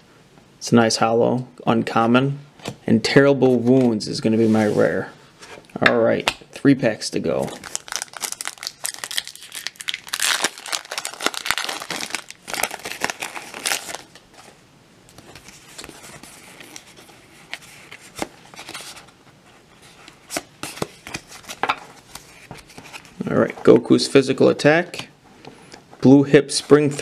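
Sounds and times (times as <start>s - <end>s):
cards rustling: 7.3s - 19.2s, 19.8s - 24.0s
foil wrapper tearing and crinkling: 7.6s - 14.2s.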